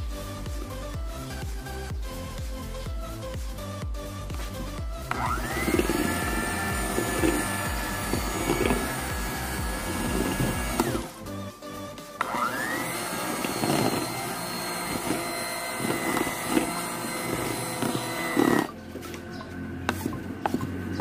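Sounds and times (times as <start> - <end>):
electric hand mixer whining: 4.6 - 11.4, 12.2 - 18.8.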